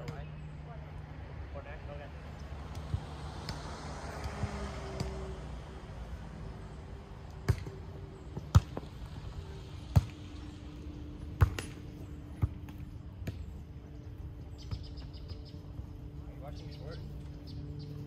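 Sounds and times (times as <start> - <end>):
volleyball being struck by hands: 2.7 - 5.2, 11.4 - 11.8.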